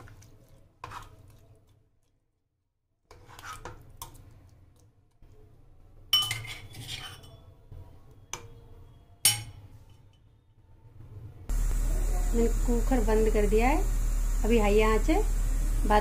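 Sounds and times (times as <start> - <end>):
metal utensils clinking on pot: 6.1 - 7.5, 9.2 - 9.6.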